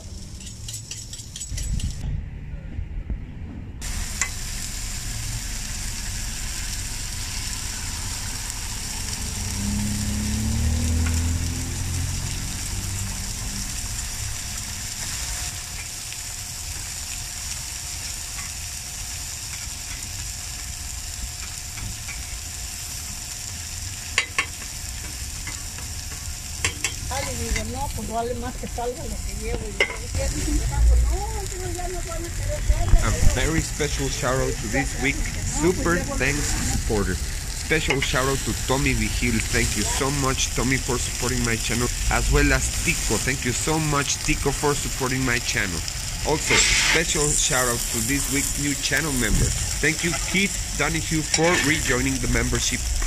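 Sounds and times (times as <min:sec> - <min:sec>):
egg sizzling on griddle: 0:00.0 - 0:02.0, 0:03.8 - 0:53.0
metal spatula clicking on griddle: 0:00.4 - 0:02.0
low rumble: 0:01.6 - 0:15.0, 0:27.0 - 0:46.5, 0:47.2 - 0:49.8.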